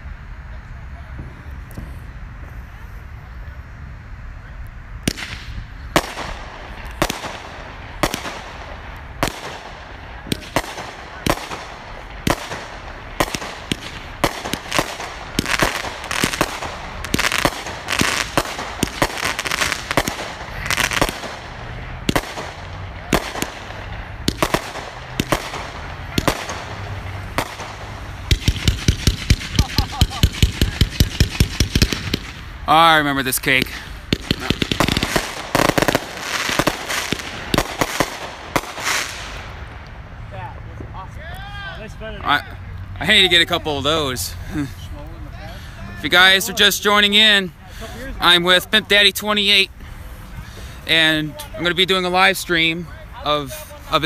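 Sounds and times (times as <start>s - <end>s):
firework reports: 0.0s - 54.0s
glittery firework crackling: 0.7s - 41.1s.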